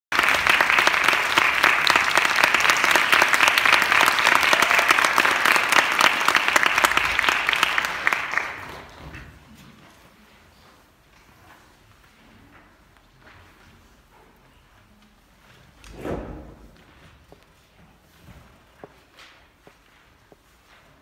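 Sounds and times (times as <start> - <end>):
audience applauding: 0.1 - 9.1.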